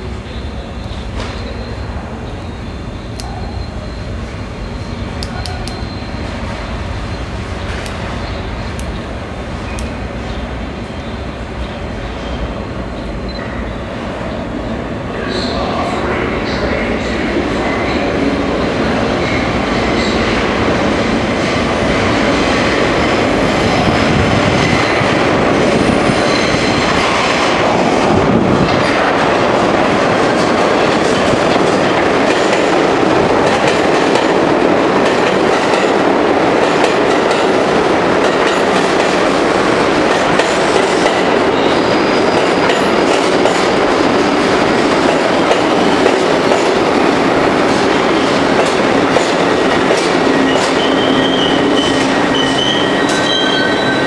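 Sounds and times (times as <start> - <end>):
train wheels on rails: 0.0 - 54.0.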